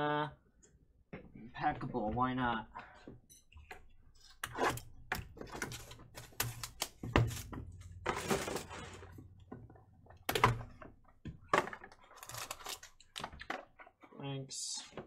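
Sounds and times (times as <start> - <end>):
cardboard scraping and rustling: 5.5 - 9.2.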